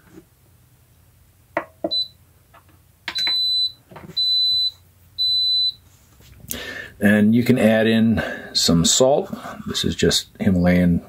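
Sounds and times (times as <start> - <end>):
pressure cooker beeping: 1.9 - 2.1, 3.1 - 5.8.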